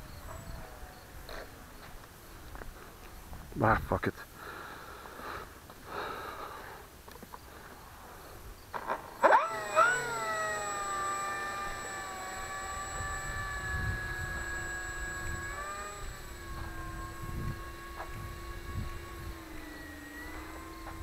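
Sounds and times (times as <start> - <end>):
small motor whining: 7.1 - 21.0.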